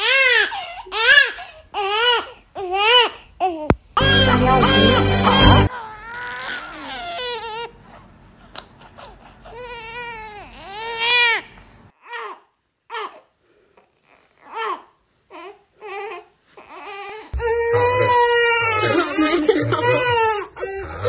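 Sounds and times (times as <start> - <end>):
newborn baby crying: 0.0 - 7.8, 9.0 - 13.3, 14.1 - 21.0.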